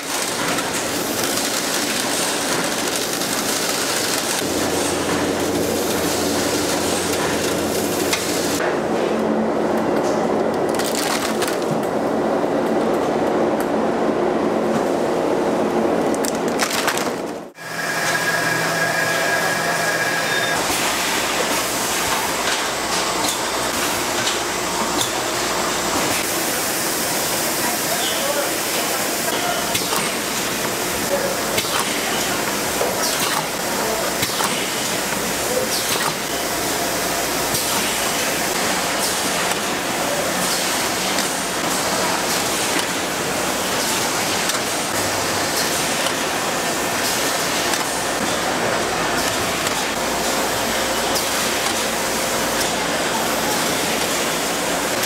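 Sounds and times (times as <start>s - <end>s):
machine rattling clatter: 0.0s - 5.3s
different steady machine noise: 0.0s - 55.0s
production line machinery running: 0.0s - 55.0s
low machine hum: 17.4s - 26.1s.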